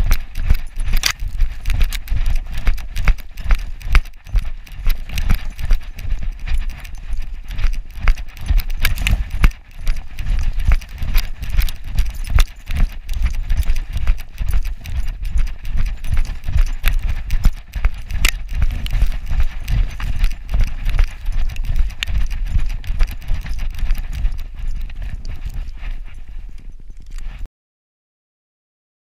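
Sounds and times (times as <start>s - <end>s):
snow crunching: 0.0s - 27.5s
wind on microphone: 0.0s - 27.5s.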